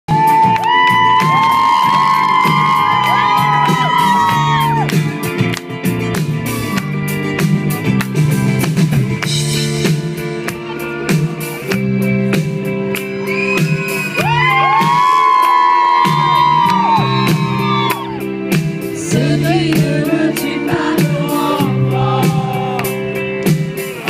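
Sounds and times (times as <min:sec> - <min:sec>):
live band music: 0:00.1 - 0:24.0
person singing: 0:18.8 - 0:23.2.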